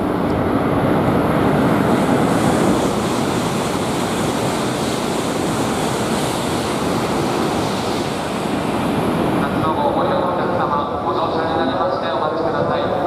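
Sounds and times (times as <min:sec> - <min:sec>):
train rushing past: 0:00.0 - 0:13.0.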